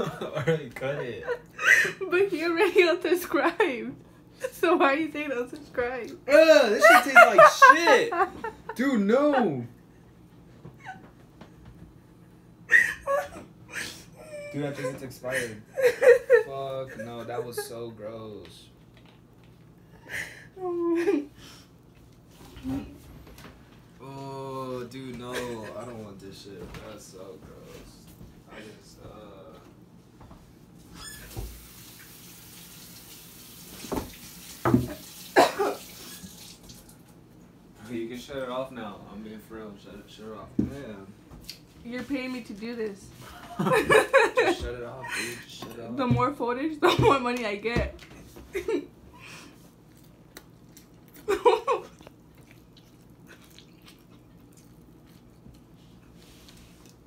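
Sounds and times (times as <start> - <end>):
faucet running into sink: 31.2 - 37.0
person chewing pizza: 49.6 - 57.0.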